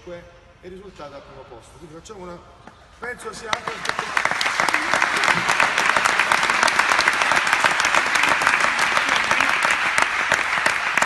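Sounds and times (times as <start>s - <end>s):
audience applauding: 3.4s - 11.0s.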